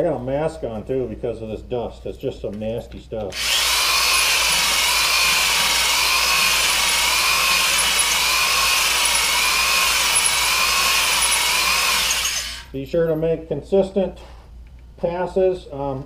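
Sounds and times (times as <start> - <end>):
electric drill whine: 3.3 - 12.8
stones scraping metal bore: 3.4 - 12.8.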